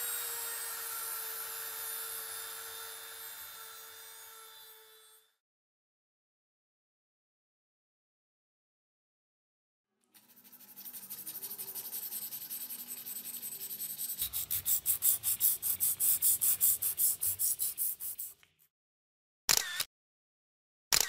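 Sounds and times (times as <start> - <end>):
sandpaper rubbing on wood: 10.2 - 18.6.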